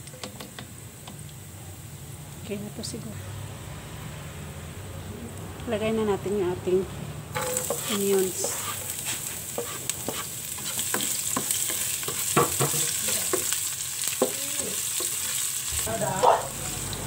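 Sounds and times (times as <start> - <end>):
onions sizzling in oil: 0.0 - 3.1, 7.3 - 17.0
spatula scraping and tapping pan: 7.4 - 14.4.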